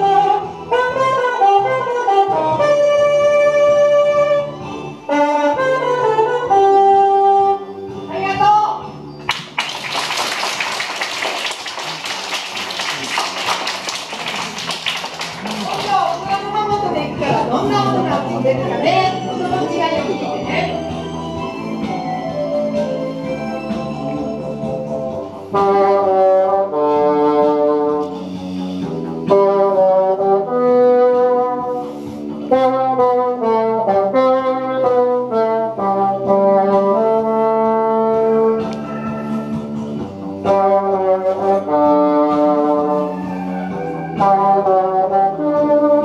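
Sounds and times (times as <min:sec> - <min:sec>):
bassoon playing a melody: 0:05.1 - 0:07.7, 0:44.3 - 0:46.0.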